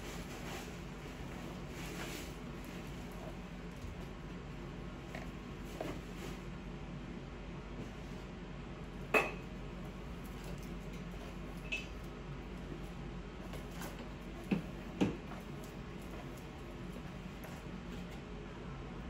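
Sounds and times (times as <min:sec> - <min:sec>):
faint room hum: 0:00.0 - 0:19.0.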